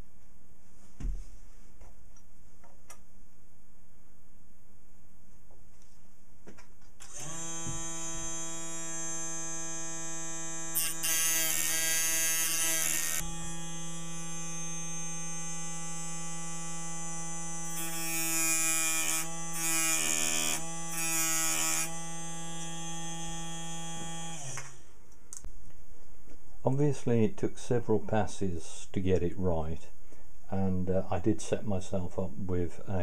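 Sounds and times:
rotary tool whining: 7.0s - 24.9s.

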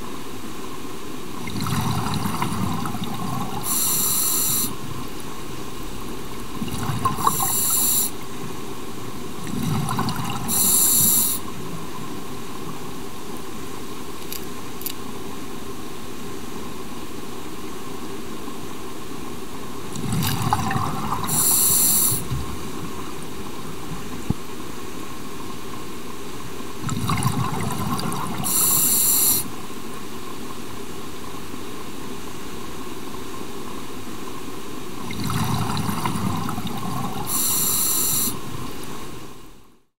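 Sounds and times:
steady underwater hiss: 0.0s - 39.8s
diver breathing through regulator: 3.6s - 4.8s, 7.1s - 8.2s, 10.5s - 11.4s, 21.3s - 22.3s, 28.4s - 29.4s, 37.2s - 38.4s.

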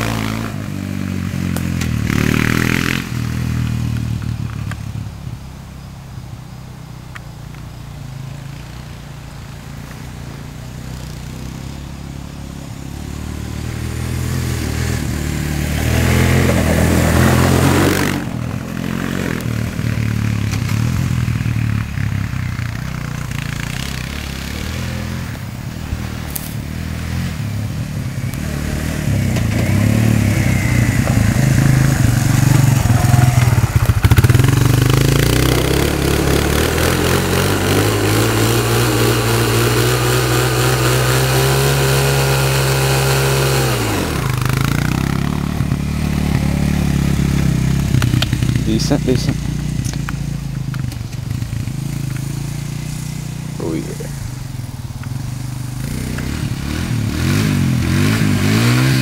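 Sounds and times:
quad bike engines revving: 0.0s - 59.0s.

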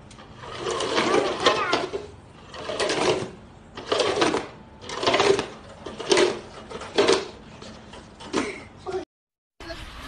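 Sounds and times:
plastic cups clattering: 0.6s - 7.4s.

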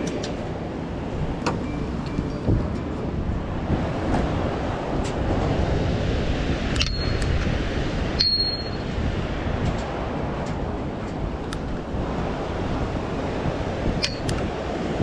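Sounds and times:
spillway water rushing: 0.0s - 15.0s
short metallic pings: 6.8s - 7.3s, 8.2s - 8.9s.

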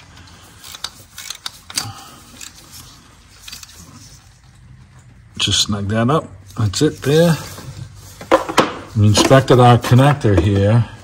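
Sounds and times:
hand ratchet clicking: 0.6s - 2.8s.

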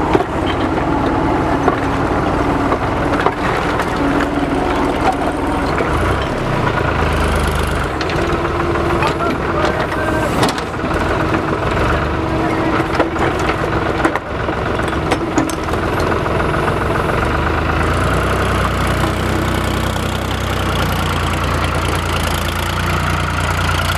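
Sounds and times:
diesel engine running: 0.0s - 23.9s.

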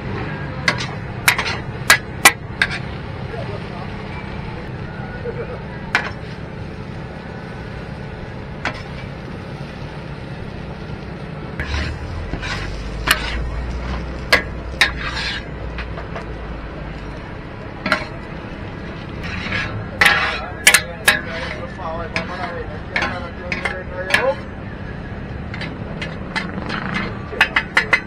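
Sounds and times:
steady background noise: 0.0s - 28.0s
spatula scraping wok: 0.6s - 3.0s, 5.9s - 6.8s, 8.6s - 9.8s, 11.6s - 16.3s, 17.8s - 24.6s, 25.3s - 28.0s.

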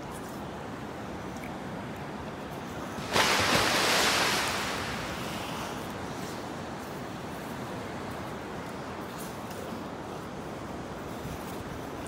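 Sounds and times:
surf washing over sand: 2.6s - 10.1s.

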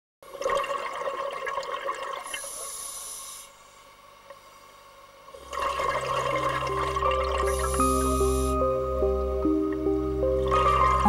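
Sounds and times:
slow music with low notes: 5.4s - 11.0s.

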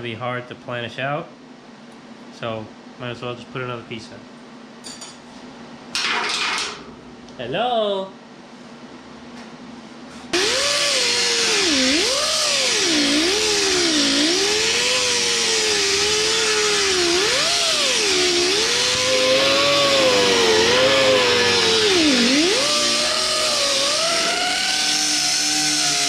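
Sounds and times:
die grinder sanding metal: 10.4s - 26.0s.

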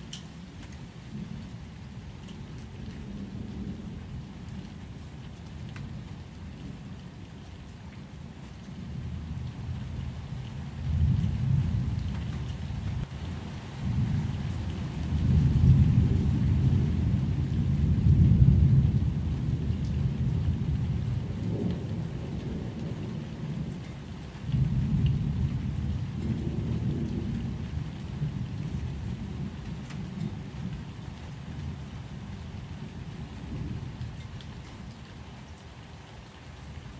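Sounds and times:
rain hiss: 0.0s - 36.9s
rolling thunder: 15.0s - 23.8s, 24.5s - 30.5s.

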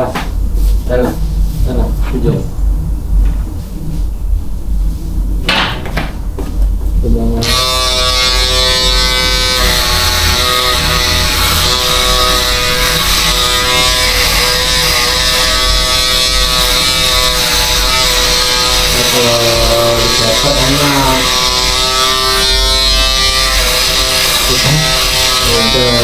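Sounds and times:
electric shaver buzzing: 7.4s - 26.0s.

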